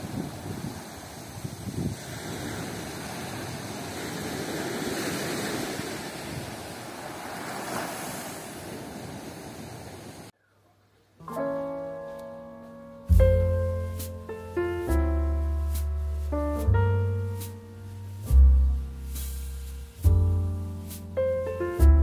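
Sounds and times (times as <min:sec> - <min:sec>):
sea waves breaking on beach: 0:00.0 - 0:10.3
piano music: 0:11.2 - 0:22.0.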